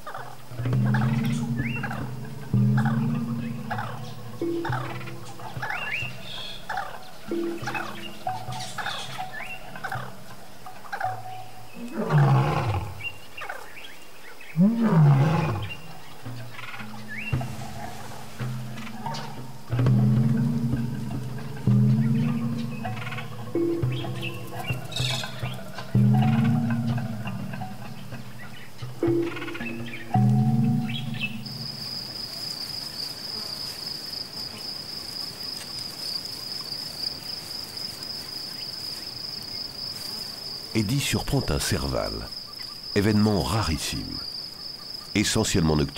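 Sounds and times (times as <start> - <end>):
soft background music: 0.0 - 32.2
insect trill: 0.0 - 45.9
deep calls of large animal: 0.4 - 13.2, 14.5 - 32.0.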